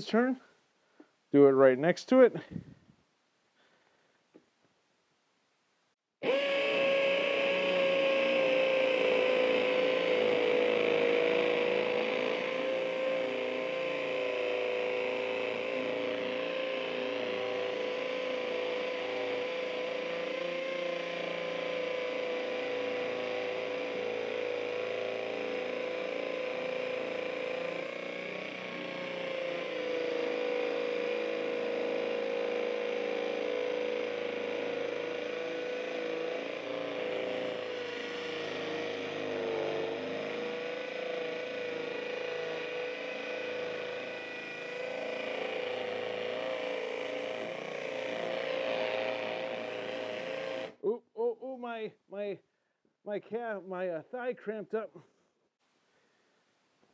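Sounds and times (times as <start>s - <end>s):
hammer drill motor whine: 6.2s - 50.9s.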